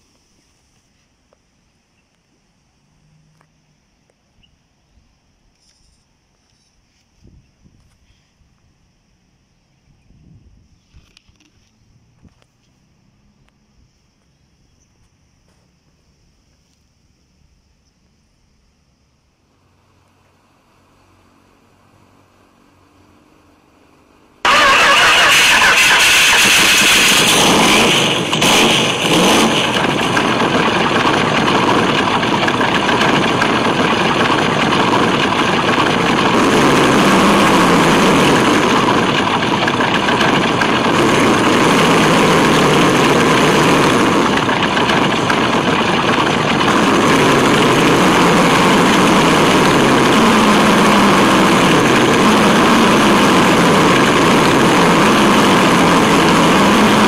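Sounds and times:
rc truck mechanical drone: 0:24.5 - 0:57.0.

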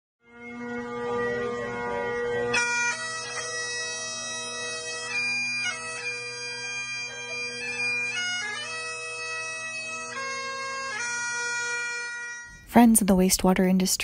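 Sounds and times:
bagpipe playing: 0:00.2 - 0:13.0.

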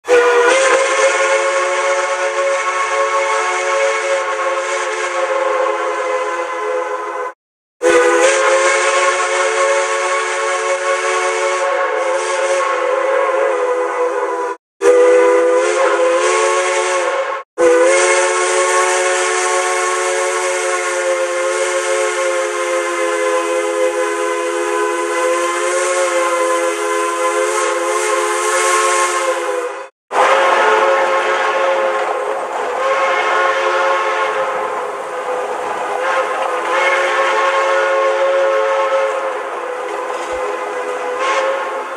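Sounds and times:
steam whistle chord: 0:00.0 - 0:41.9.

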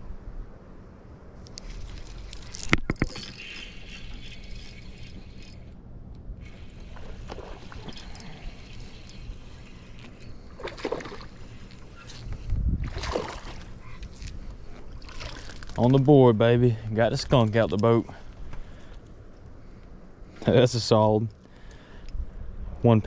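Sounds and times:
reel clicks: 0:01.4 - 0:12.5
fishing reel cranking: 0:01.8 - 0:05.8, 0:06.4 - 0:12.0
fish splashing: 0:06.5 - 0:12.0, 0:12.9 - 0:13.8.

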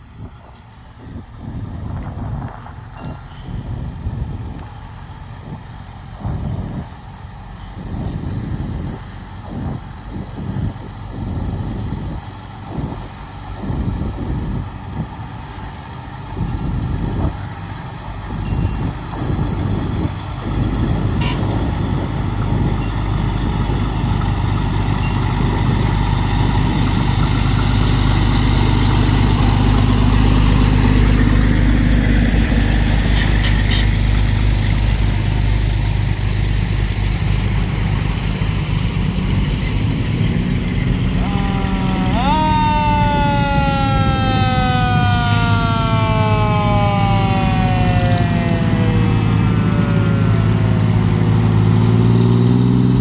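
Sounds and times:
wind buffeting microphone: 0:00.0 - 0:36.3
fire truck engine approaching: 0:00.0 - 0:53.0.

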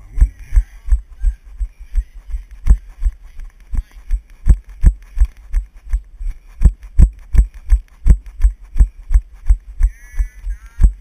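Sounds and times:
running footfalls: 0:00.1 - 0:11.0.

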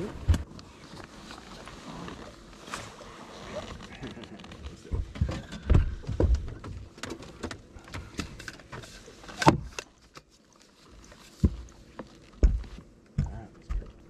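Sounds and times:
knocks and thumps: 0:04.8 - 0:08.3, 0:12.4 - 0:14.0.

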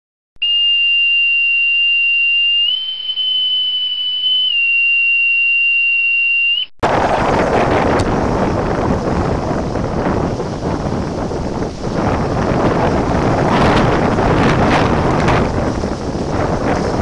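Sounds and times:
high whistle-like tone: 0:00.4 - 0:06.7
wind buffeting microphone: 0:06.8 - 0:17.0.

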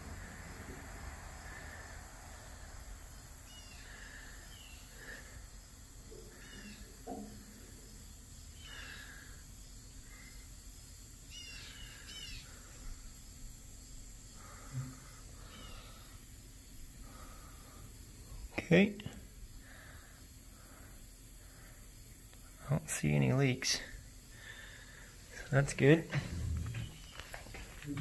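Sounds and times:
birds chirping: 0:02.4 - 0:28.0
faint knock: 0:07.0 - 0:07.6.

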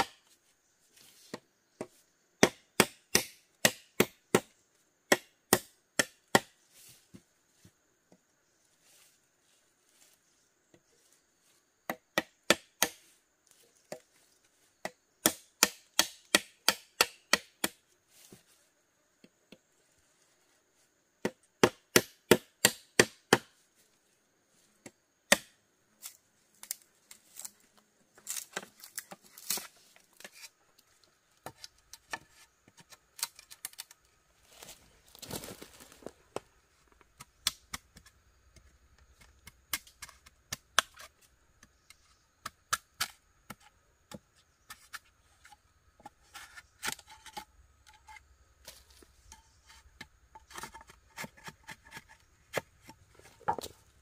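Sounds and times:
blade chopping bamboo: 0:01.3 - 0:04.5, 0:05.1 - 0:06.6, 0:11.9 - 0:13.1, 0:14.8 - 0:17.8, 0:21.2 - 0:23.6, 0:25.3 - 0:25.6.

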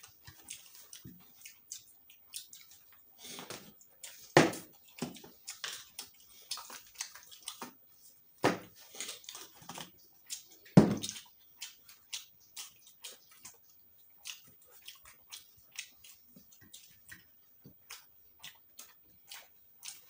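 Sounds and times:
chewing and lip smacking: 0:00.0 - 0:20.0
knocks against table: 0:08.4 - 0:08.7, 0:10.8 - 0:11.0.

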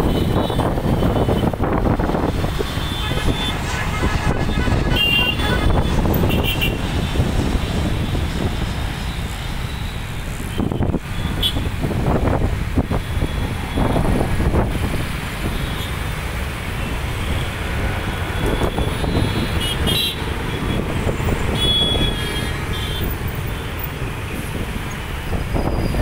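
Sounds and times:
road traffic rumbling: 0:00.0 - 0:26.0
car horn toots: 0:02.7 - 0:06.8, 0:18.4 - 0:20.8, 0:21.5 - 0:23.1.

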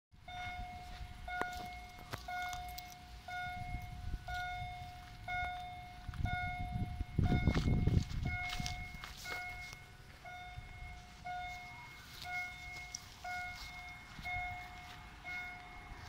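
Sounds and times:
level crossing warning tone: 0:00.2 - 0:16.0.

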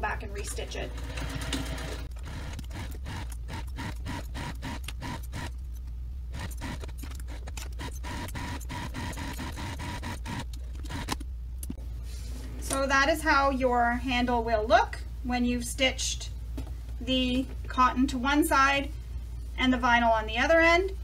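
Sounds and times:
sewing machine motor hum: 0:00.6 - 0:11.2
sewing machine needle strokes: 0:01.0 - 0:05.6, 0:06.3 - 0:11.2.

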